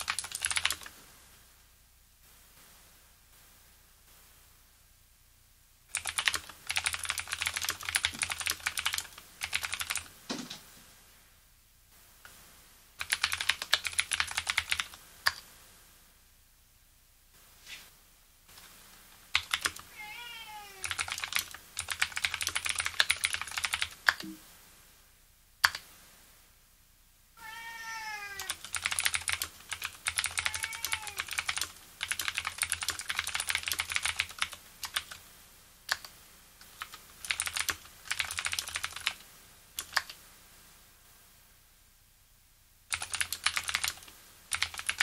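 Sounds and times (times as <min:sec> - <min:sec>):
clicky keyboard typing: 0:00.0 - 0:00.9, 0:05.9 - 0:10.1, 0:13.0 - 0:15.5, 0:18.5 - 0:19.9, 0:20.8 - 0:24.4, 0:25.6 - 0:25.9, 0:28.4 - 0:35.2, 0:35.9 - 0:40.2, 0:42.9 - 0:45.0
cat meowing: 0:19.9 - 0:21.0, 0:27.4 - 0:28.6, 0:30.3 - 0:31.3.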